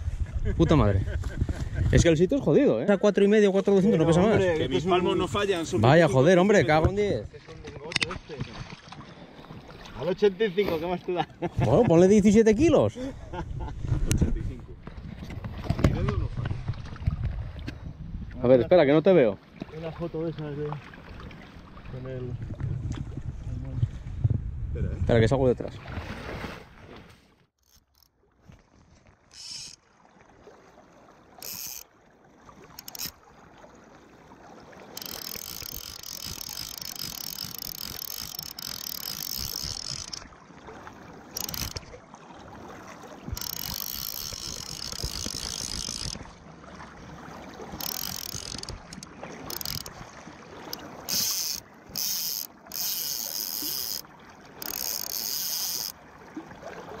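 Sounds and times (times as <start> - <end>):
fishing reel ratchet buzzing: 27.6 - 28.1, 29.3 - 29.8, 31.4 - 31.9, 32.8 - 33.2, 34.9 - 40.3, 41.3 - 41.9, 43.3 - 46.2, 47.7 - 50.0, 50.6 - 54.0, 54.6 - 56.0.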